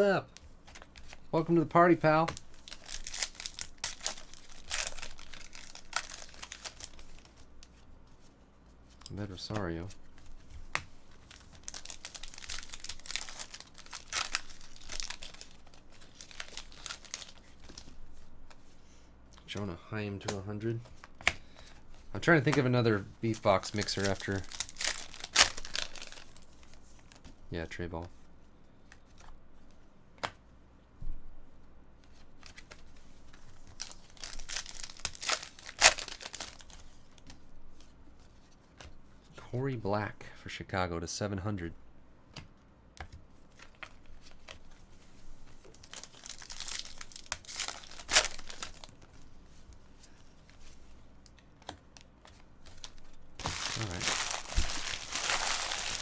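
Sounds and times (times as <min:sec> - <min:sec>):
foil wrapper tearing and crinkling: 0:01.8 - 0:07.3, 0:11.3 - 0:17.8, 0:23.5 - 0:26.7, 0:33.7 - 0:36.8, 0:45.7 - 0:49.0, 0:52.7 - 0:56.0.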